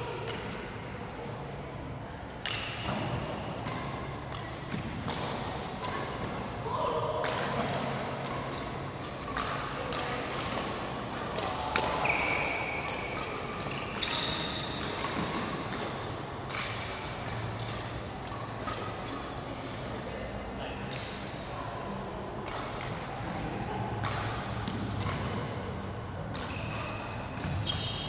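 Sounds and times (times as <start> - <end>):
reverberant sports hall hum: 0.0 - 28.0
racket hitting shuttlecock: 2.3 - 19.9, 23.8 - 25.3, 26.2 - 27.8
court shoes squealing: 2.7 - 4.1, 10.5 - 15.7, 24.7 - 28.0.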